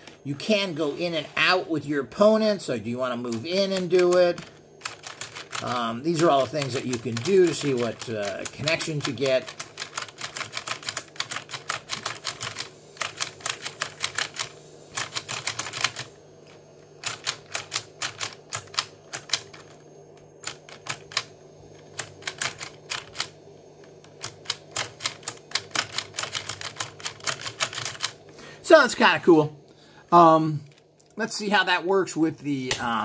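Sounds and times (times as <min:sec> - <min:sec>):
hard plastic toy clicking: 0:03.3 - 0:16.1, 0:17.0 - 0:19.7, 0:21.9 - 0:23.3, 0:24.1 - 0:28.2.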